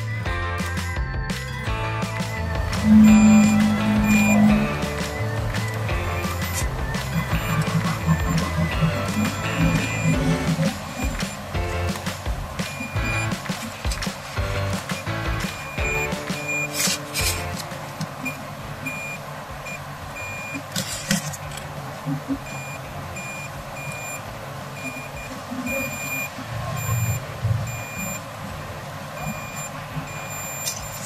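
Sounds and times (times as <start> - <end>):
electronic buzzer beeping: 2.6 - 11.4, 12.6 - 13.4, 14.9 - 17.6, 18.2 - 20.6, 22.5 - 24.2, 24.8 - 28.2, 29.2 - 31.0.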